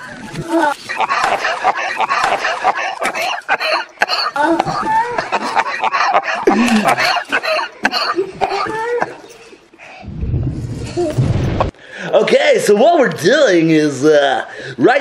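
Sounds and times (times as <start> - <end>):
children giggling and laughing: 0.0 - 9.8.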